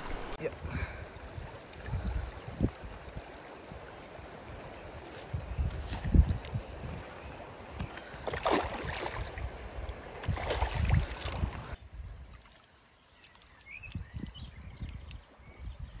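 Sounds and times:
stream water splashing: 0.0 - 15.3
fish splashing: 7.9 - 11.6.

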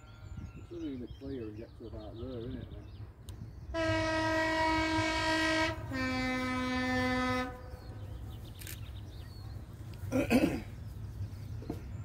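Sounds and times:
locomotive two-tone horn: 3.7 - 7.8.

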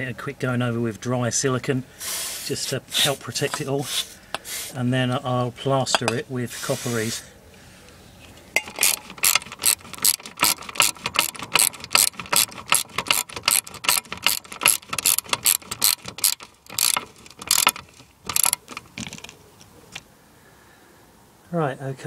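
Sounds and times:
socket ratchet clicking: 8.6 - 19.2.

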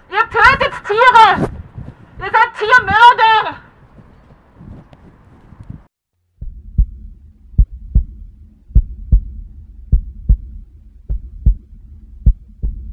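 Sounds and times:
heartbeat thumps: 4.0 - 12.9
low steady drone: 6.4 - 12.9.

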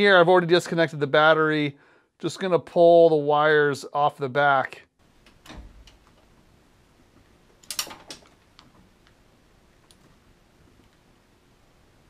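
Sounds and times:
small clicks of wire connectors: 7.6 - 9.2.

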